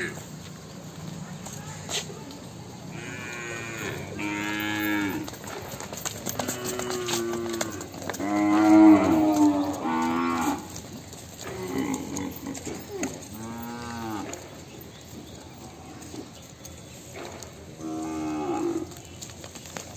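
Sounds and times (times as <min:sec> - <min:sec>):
cattle mooing: 0:02.9 - 0:05.3, 0:06.4 - 0:10.7, 0:11.4 - 0:14.3.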